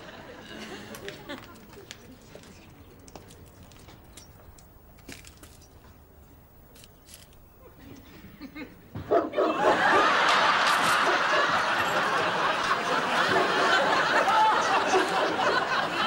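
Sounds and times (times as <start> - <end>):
studio audience laughing: 9.5 - 16.0.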